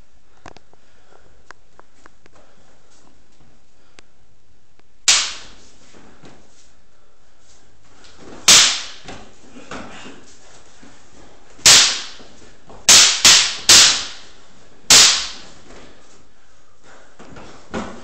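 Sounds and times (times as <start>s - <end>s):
practice swords clacking: 5.1s - 6.4s, 8.0s - 10.6s, 11.6s - 16.2s.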